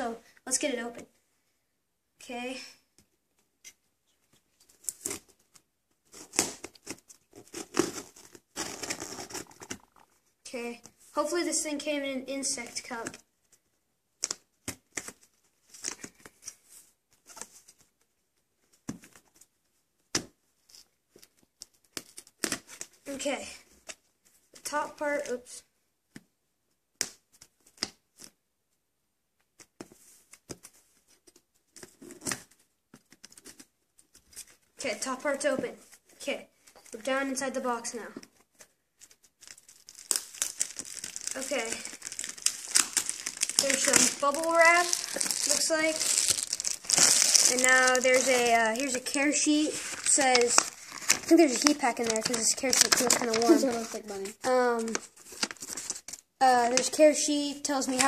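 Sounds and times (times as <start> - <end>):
knife slitting cardboard box tape: 6.1 - 9.8.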